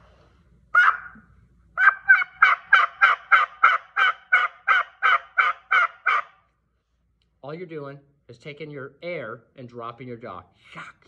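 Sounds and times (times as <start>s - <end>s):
turkey call yelps: 0.7s - 6.5s.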